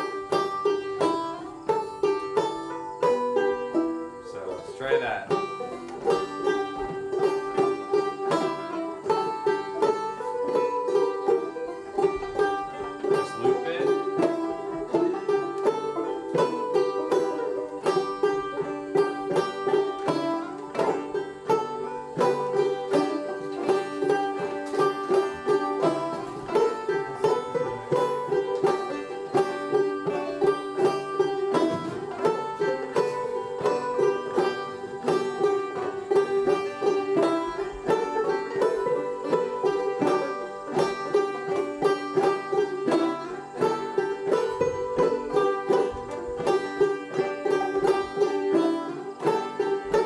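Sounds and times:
banjos playing: 0:00.0 - 0:50.0.

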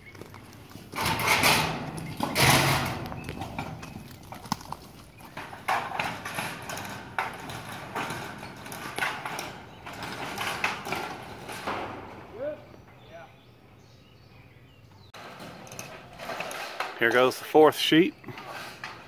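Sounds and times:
metal roofing knocks and clanks: 0:00.8 - 0:13.1, 0:15.1 - 0:19.0
sheet metal rattling: 0:00.9 - 0:12.5, 0:15.2 - 0:17.7.

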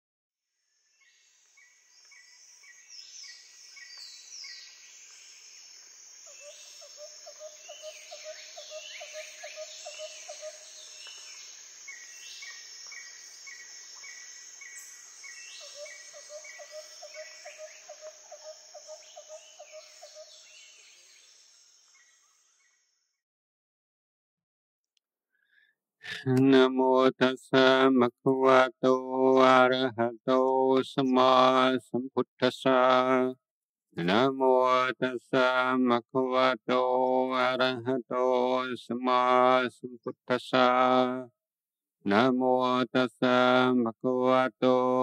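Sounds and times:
high insect drone: 0:04.6 - 0:20.2.

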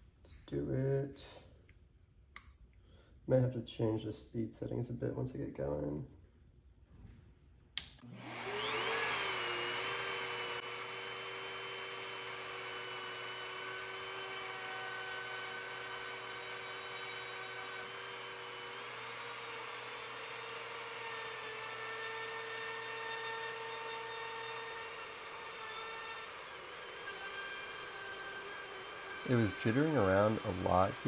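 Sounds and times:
router motor whining: 0:08.0 - 0:31.0.

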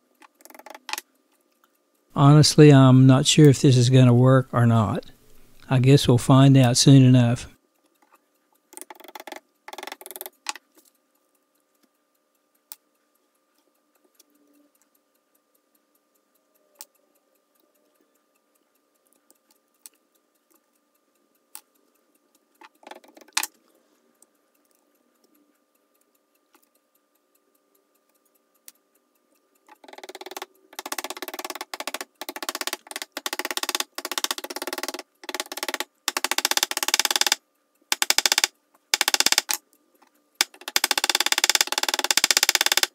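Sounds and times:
hammer tapping wood shims: 0:00.3 - 0:01.0, 0:08.8 - 0:10.6, 0:29.8 - 0:39.6, 0:40.4 - 0:42.9.

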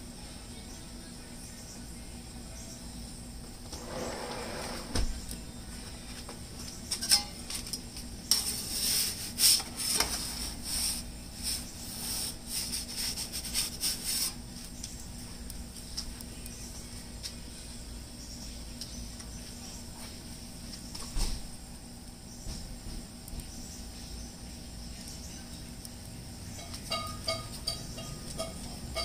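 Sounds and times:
metal pizza peel clinking and scraping: 0:06.8 - 0:14.4, 0:26.5 - 0:29.0.

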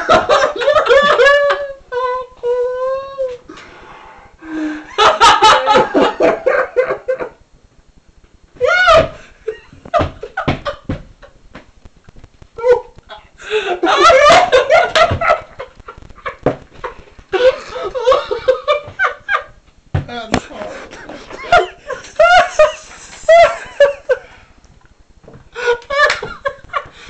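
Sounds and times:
men laughing: 0:00.0 - 0:03.0, 0:04.4 - 0:07.4, 0:12.6 - 0:19.6, 0:20.4 - 0:24.4, 0:25.6 - 0:27.0.

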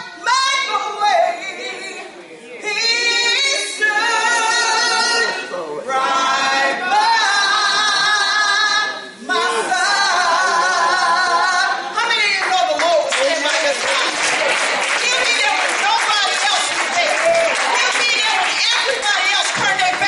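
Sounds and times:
woman singing unaccompanied: 0:00.0 - 0:13.0.

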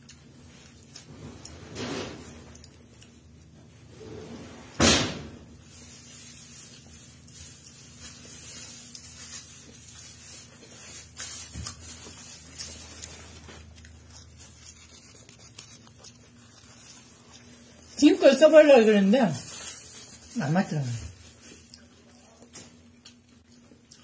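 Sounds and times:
wet chewing: 0:08.8 - 0:18.0, 0:21.3 - 0:24.0.

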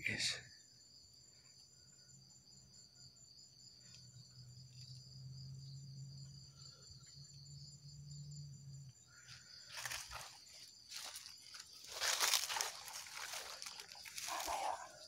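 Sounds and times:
insects chirring: 0:00.0 - 0:15.0
footsteps on dry leaves: 0:09.6 - 0:15.0.

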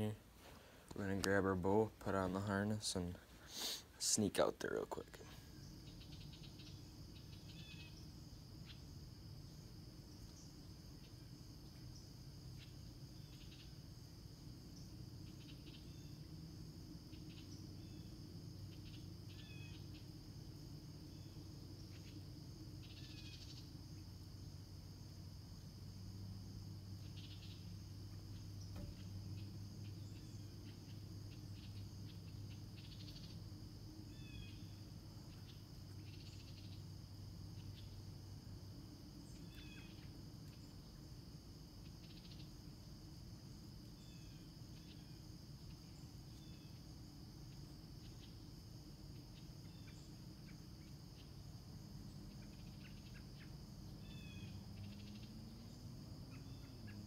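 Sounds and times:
crickets chirping: 0:00.0 - 0:57.0
low steady hum: 0:00.0 - 0:57.0
bird chirps: 0:05.2 - 0:08.9, 0:27.0 - 0:33.4, 0:34.1 - 0:36.9.

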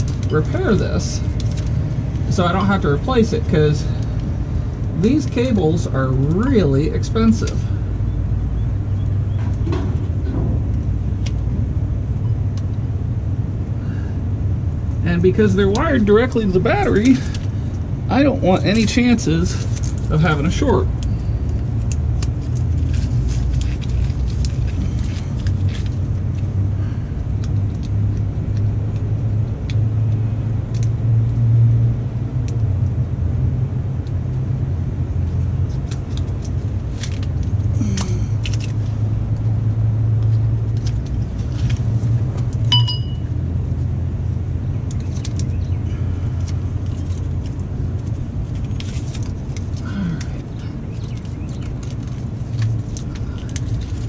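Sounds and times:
tape rustling and clicking: 0:00.0 - 0:02.4, 0:09.0 - 0:12.9, 0:15.7 - 0:17.8, 0:18.6 - 0:26.7, 0:27.3 - 0:33.0, 0:33.8 - 0:44.0, 0:44.6 - 0:54.0
steady low rumble: 0:00.0 - 0:54.0.

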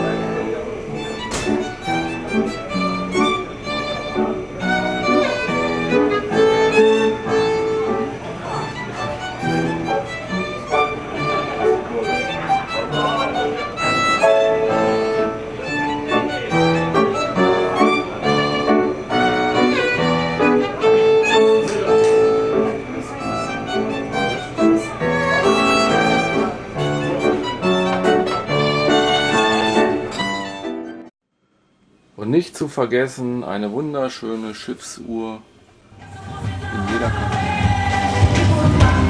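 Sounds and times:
sustained accompanying notes: 0:00.0 - 0:31.1
violin melody: 0:00.0 - 0:31.1.

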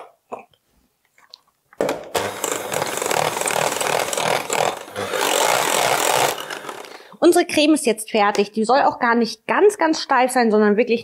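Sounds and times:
electric hand mixer whirring: 0:02.2 - 0:07.1.

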